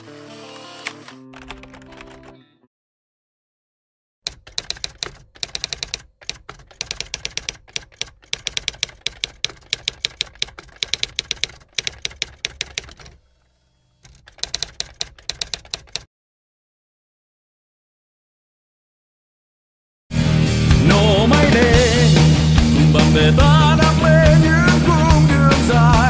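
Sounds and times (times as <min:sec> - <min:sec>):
typewriter key clacks: 0:00.8 - 0:02.4, 0:04.3 - 0:13.2, 0:14.0 - 0:16.1.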